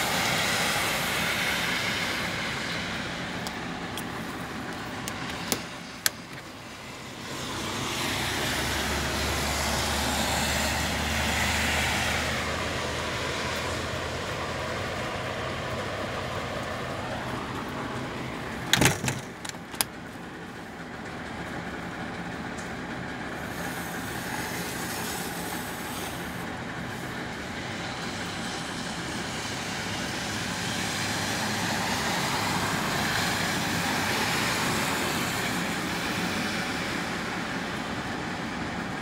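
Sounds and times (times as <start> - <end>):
heavy machinery running: 0.0 - 10.2.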